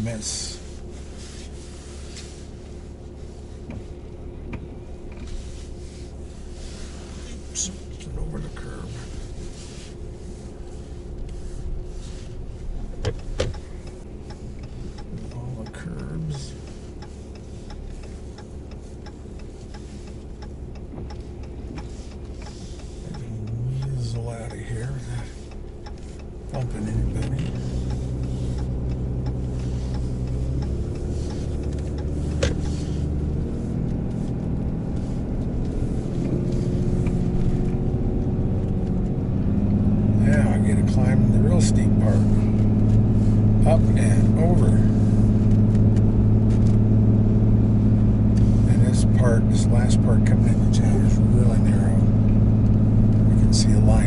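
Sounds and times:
diesel truck engine running: 0:00.0 - 0:54.0
sharp clicks: 0:25.5 - 0:33.2.

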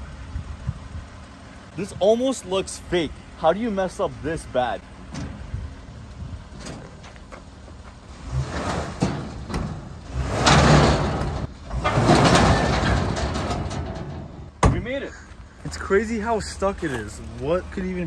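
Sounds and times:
tire scraping over gravel: 0:01.2 - 0:18.0
engine revving: 0:08.1 - 0:13.2.

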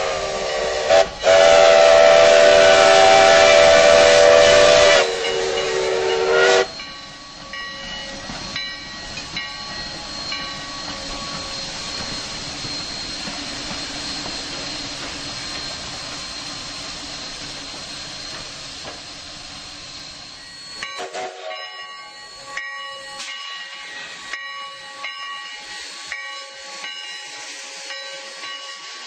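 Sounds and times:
steam whistle blowing: 0:00.0 - 0:06.8, 0:19.8 - 0:23.2
steam hissing: 0:00.0 - 0:29.0.

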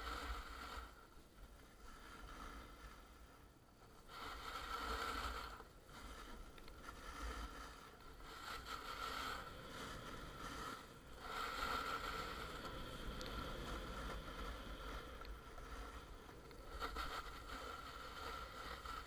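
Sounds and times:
snowboard scraping over snow: 0:00.0 - 0:19.0.

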